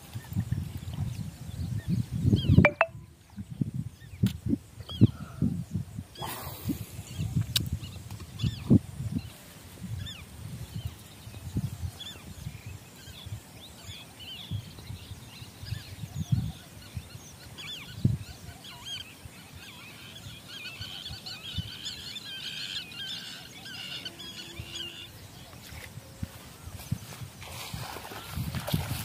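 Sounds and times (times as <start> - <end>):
birds chirping: 2.4 - 3.0, 12.0 - 28.7.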